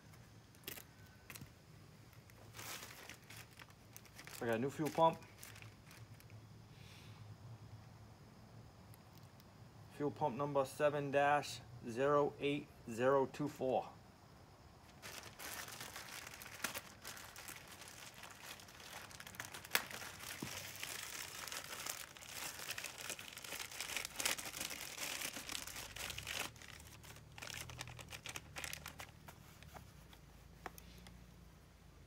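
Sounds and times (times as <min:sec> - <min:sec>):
packaging crinkling and tearing: 0:00.5 - 0:01.5, 0:02.1 - 0:06.3, 0:14.9 - 0:29.7.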